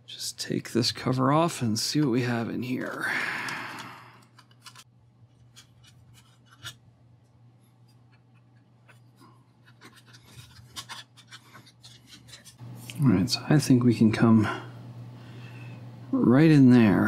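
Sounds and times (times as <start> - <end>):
screwdriver clicks and scrapes: 4.2 - 6.8, 7.9 - 12.6.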